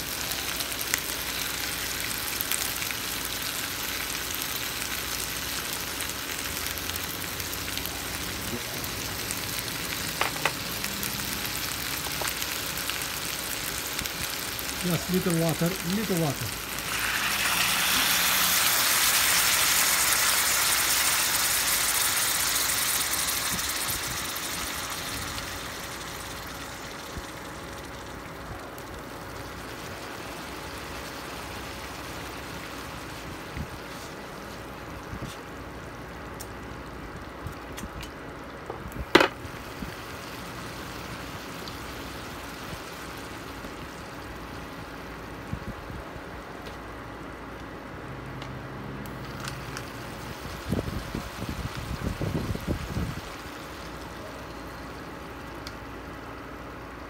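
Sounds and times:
chicken and onions sizzling: 0.0s - 35.0s, 39.2s - 45.5s, 48.9s - 57.0s.

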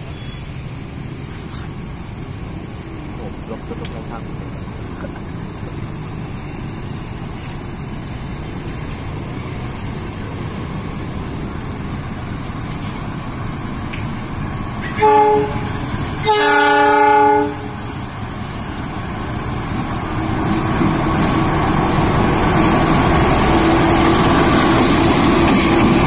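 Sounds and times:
train engine and rumble passing: 0.0s - 26.0s
locomotive horn blasts: 14.9s - 17.8s.

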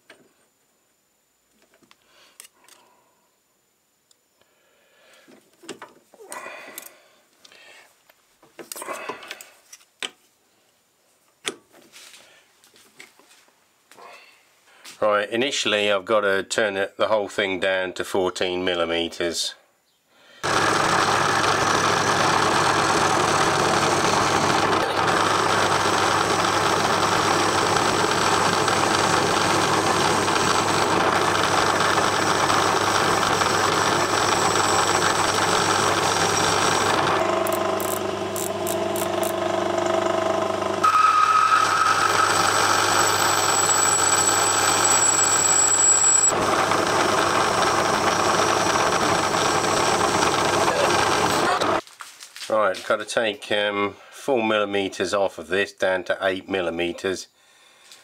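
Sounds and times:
metal lathe motor hum: 20.4s - 51.8s.

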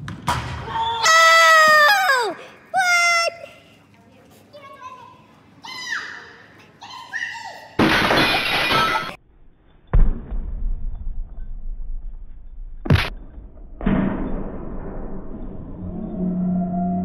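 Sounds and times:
sharp crack: 12.9s - 13.2s.

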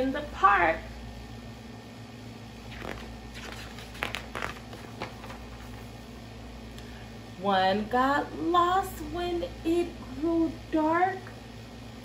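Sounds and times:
low steady hum: 0.0s - 12.0s
book page turning: 2.7s - 6.0s.

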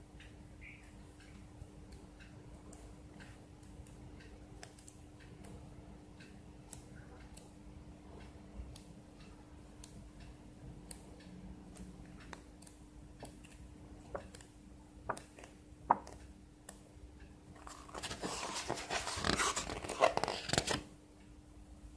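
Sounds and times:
paper clicks and ticks: 1.2s - 5.6s, 10.9s - 16.9s, 17.6s - 20.9s
page turning rustle: 17.6s - 20.9s.

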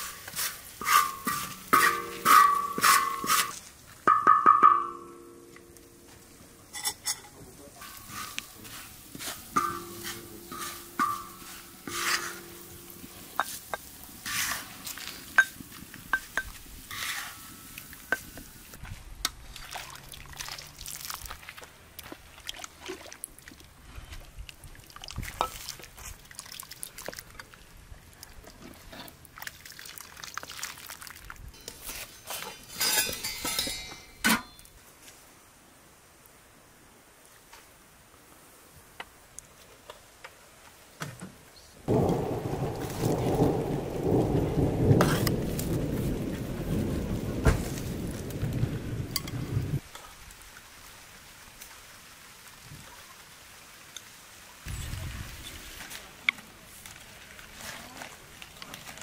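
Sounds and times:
liquid pouring: 19.6s - 21.6s, 29.2s - 31.4s
metal spoon clinking on bowl: 32.7s - 34.6s.

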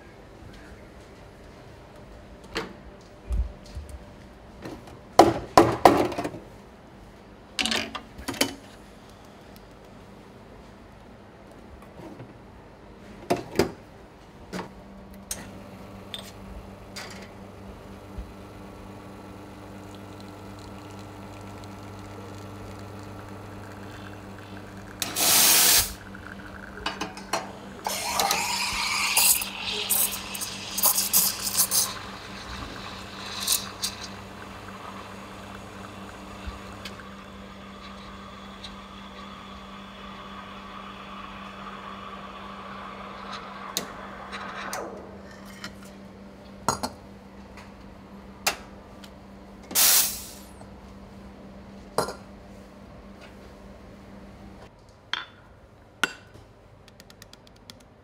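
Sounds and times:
espresso machine hum: 15.5s - 45.5s
milk steaming hiss: 18.2s - 45.4s, 49.8s - 50.5s
steam wand hissing: 23.3s - 26.8s, 27.7s - 44.9s.

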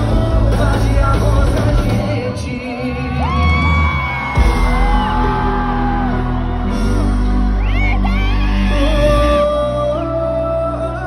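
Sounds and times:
live pop concert music: 0.0s - 11.0s
person singing long notes: 7.6s - 11.0s.

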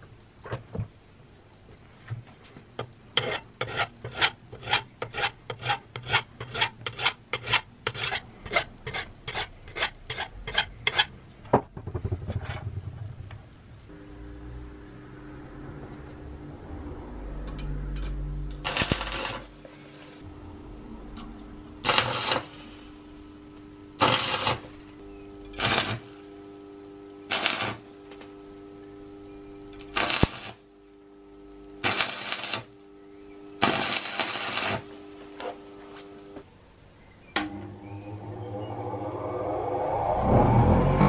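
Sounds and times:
steady electrical hum: 0.0s - 39.2s
arc welder crackling: 18.5s - 20.3s, 21.6s - 36.4s.

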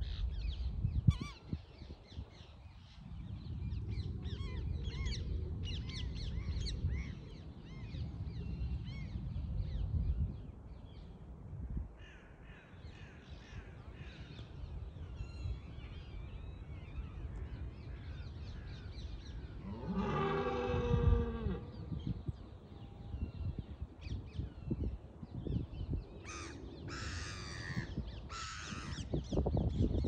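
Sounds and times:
deer stag roaring: 19.6s - 21.7s.

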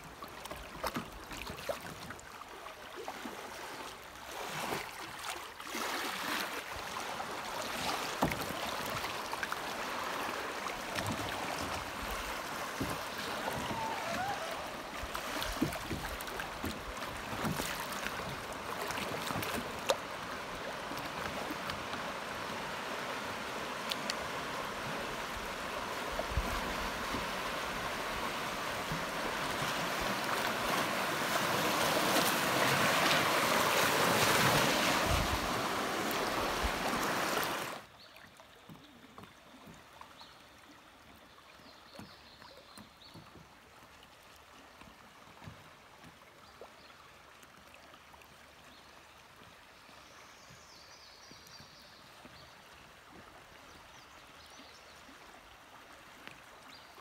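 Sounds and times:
creek water rushing and splashing: 0.0s - 57.0s.

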